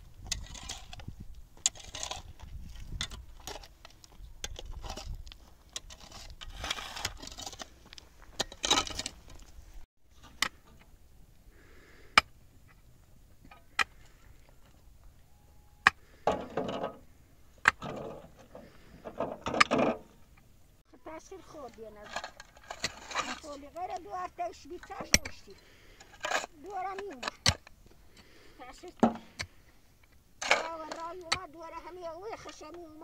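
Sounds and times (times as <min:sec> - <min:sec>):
hoes scraping stony soil: 0:00.0 - 0:15.2, 0:15.8 - 0:20.5, 0:21.1 - 0:33.0
pickaxe striking ground: 0:08.4 - 0:09.2, 0:24.9 - 0:25.5.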